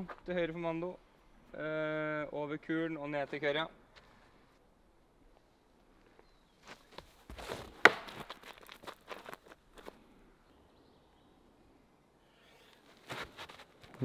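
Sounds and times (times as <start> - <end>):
footsteps scuffing on gravel: 6.7 - 9.9.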